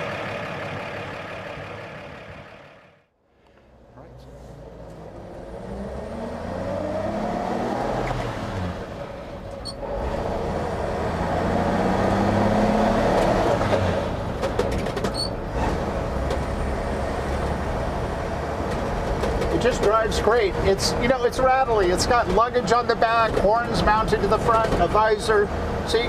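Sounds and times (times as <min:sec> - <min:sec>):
pickup truck engine accelerating: 0:03.7 - 0:26.0
truck rattling clicks: 0:13.2 - 0:15.5, 0:18.6 - 0:20.3, 0:21.1 - 0:25.2.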